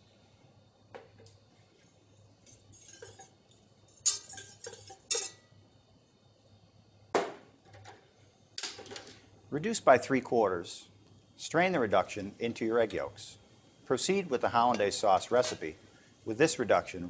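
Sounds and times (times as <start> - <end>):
saucepan and utensils clinking: 2.8 - 3.3, 4.0 - 5.4, 14.5 - 15.7.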